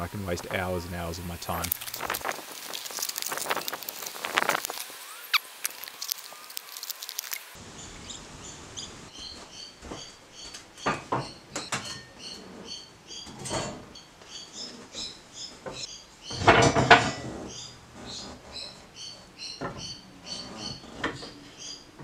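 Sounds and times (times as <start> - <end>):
wood and metal clattering: 9.2 - 22.0.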